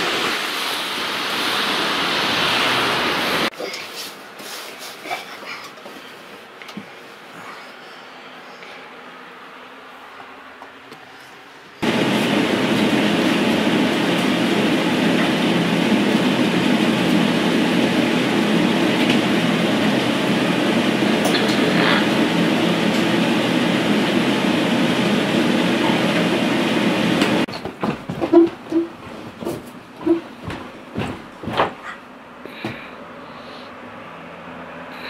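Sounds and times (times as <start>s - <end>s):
loud dense rumbling noise: 11.8s - 27.5s
short knocks and rustles: 27.5s - 32.0s.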